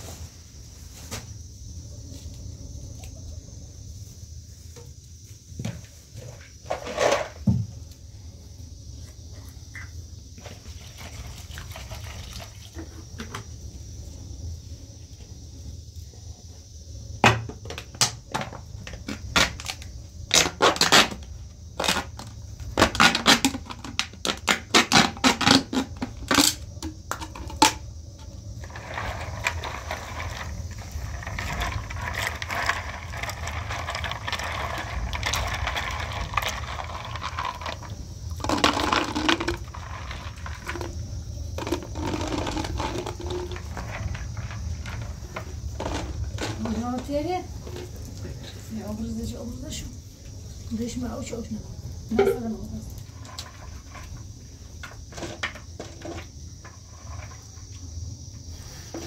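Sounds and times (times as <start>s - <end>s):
scraping rustle: 4.5s - 7.5s, 28.6s - 41.0s
plastic bottle crackling: 18.0s - 27.8s, 28.6s - 41.0s, 41.6s - 47.9s.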